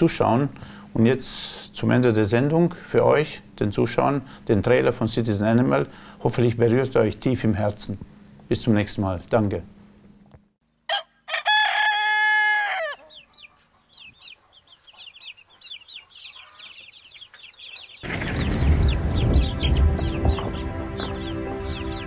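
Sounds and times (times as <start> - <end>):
rooster crowing: 10.9 - 13.4
loud heavy music: 18.9 - 22.0.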